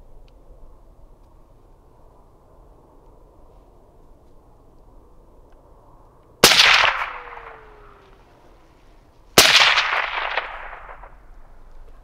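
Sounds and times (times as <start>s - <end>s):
rifle shots with echo: 6.4s - 8.2s, 9.4s - 11.6s.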